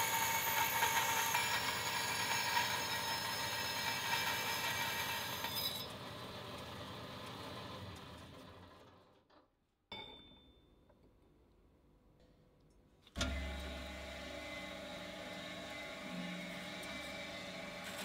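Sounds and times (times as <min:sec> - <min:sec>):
bandsaw cutting metal tube: 0:00.0 - 0:06.0, 0:13.2 - 0:18.0.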